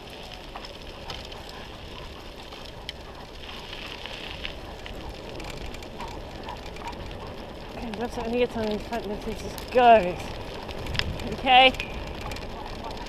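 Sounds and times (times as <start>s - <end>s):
wheels rolling over dirt road: 0.0s - 13.0s
wind on microphone: 1.1s - 13.0s.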